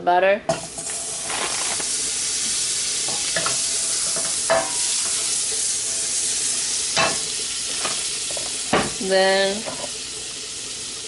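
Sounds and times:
butter sizzling in a hot pan: 0.5s - 11.0s
utensil knocking against pan: 7.0s - 9.0s.

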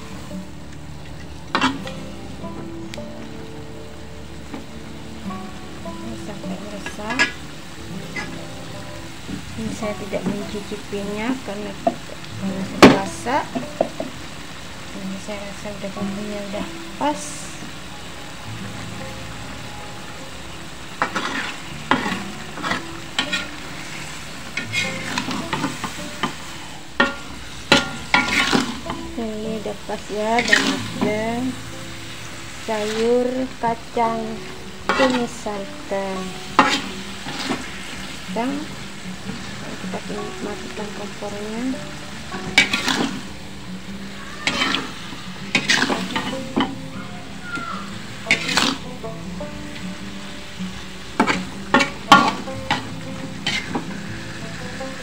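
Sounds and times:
sauce sizzling: 0.0s - 55.0s
metal spatula scraping wok: 1.1s - 2.2s, 5.8s - 14.2s, 20.9s - 46.9s, 48.0s - 55.0s.

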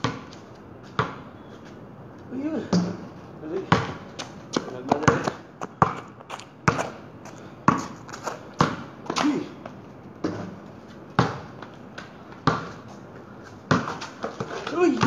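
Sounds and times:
basketball bouncing on concrete: 0.0s - 1.2s, 3.6s - 7.0s, 7.7s - 9.4s, 11.1s - 12.8s, 13.7s - 15.0s.

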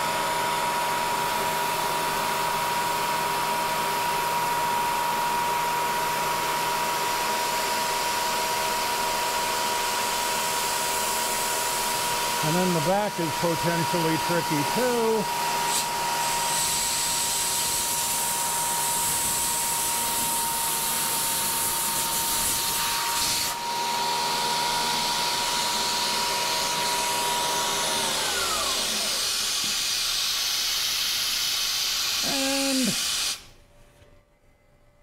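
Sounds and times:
compressed air hissing: 12.4s - 23.5s, 28.9s - 33.6s.

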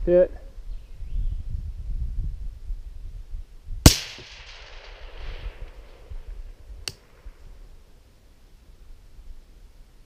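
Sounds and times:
suppressed rifle shot with echo: 3.8s - 7.9s.

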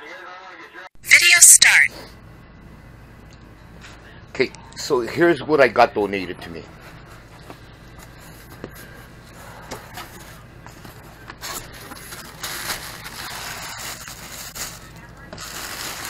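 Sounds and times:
cardboard and plastic rustling: 10.0s - 16.0s.

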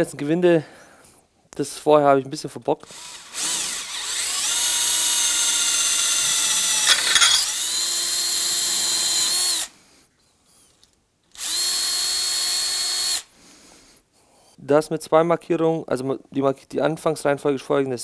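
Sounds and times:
cordless drill whining: 2.8s - 9.7s, 11.3s - 13.3s
drill bit crunching into metal: 3.8s - 8.0s.

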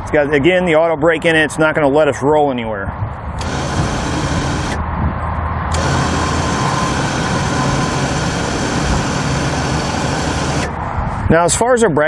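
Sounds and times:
low engine hum: 2.9s - 11.3s
electric winch motor whirring: 3.4s - 4.8s, 5.7s - 10.8s.

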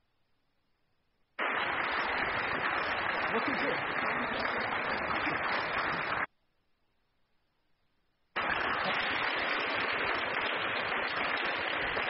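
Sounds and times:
audience applause: 1.4s - 6.3s, 8.4s - 12.0s.

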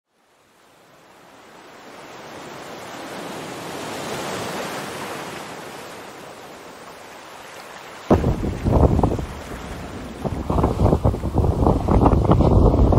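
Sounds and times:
sea and wind rushing: 0.1s - 12.9s.

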